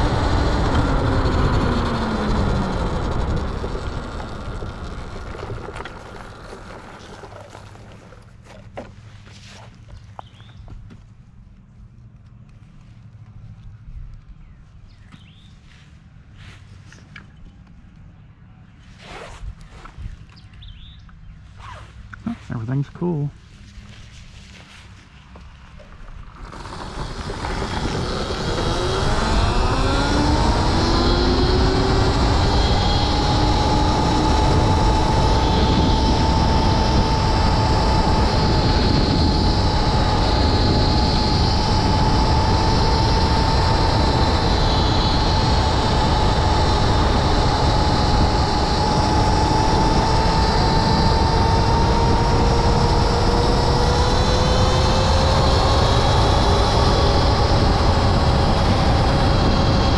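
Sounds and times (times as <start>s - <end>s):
electric motor whine: 0.0s - 9.0s, 25.4s - 59.9s
wind noise: 0.0s - 9.6s, 23.4s - 59.9s.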